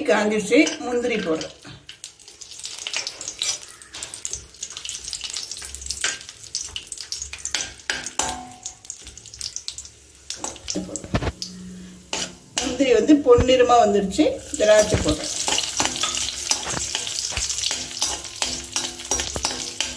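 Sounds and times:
nuts sizzling and popping in oil: 0.0s - 19.9s
metal spoon scraping a pan: 2.5s - 6.3s, 10.3s - 13.4s, 14.4s - 19.9s.

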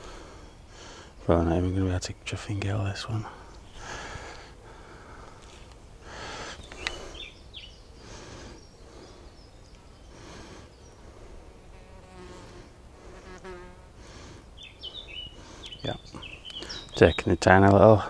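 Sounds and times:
bird chirps: 6.4s - 11.1s, 14.5s - 17.8s
flying insect buzzing: 10.1s - 14.5s.

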